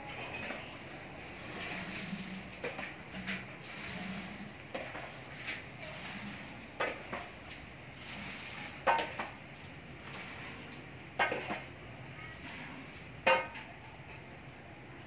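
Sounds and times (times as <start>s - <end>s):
metal pots clinking: 0.0s - 0.8s, 13.2s - 14.3s.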